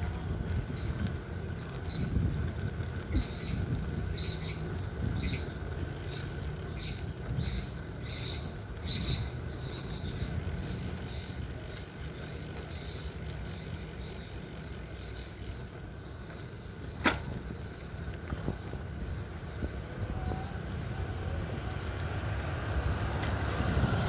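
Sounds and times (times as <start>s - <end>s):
wind on microphone: 0.0s - 5.8s
tyre noise on road: 0.0s - 24.0s.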